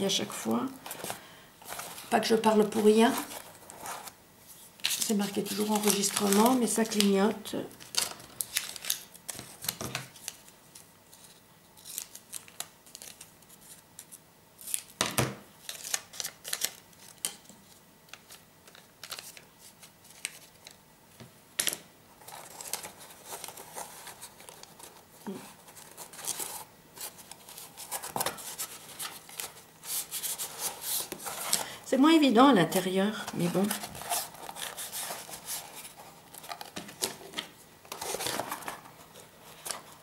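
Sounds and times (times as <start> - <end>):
paper rustling: 0.8 - 14.8, 22.2 - 31.7, 32.7 - 40.0.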